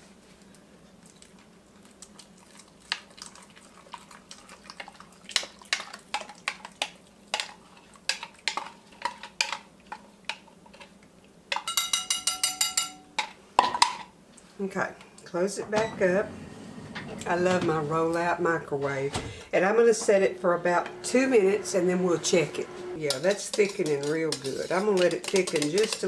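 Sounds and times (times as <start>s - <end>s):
whisk clinking against bowl: 11.5s - 13.0s, 23.0s - 26.0s.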